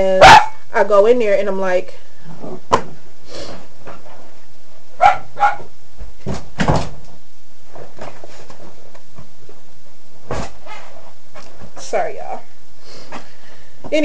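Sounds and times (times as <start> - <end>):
dog barking: 0.2 - 0.6, 5.0 - 5.7.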